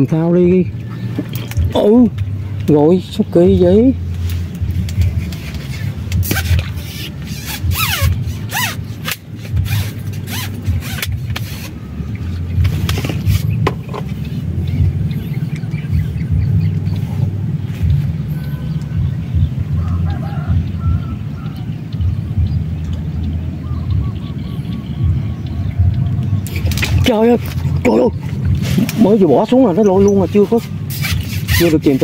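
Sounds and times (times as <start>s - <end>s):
steady low rumble: 0.0s - 31.3s
rustling and clicking: 4.1s - 11.7s.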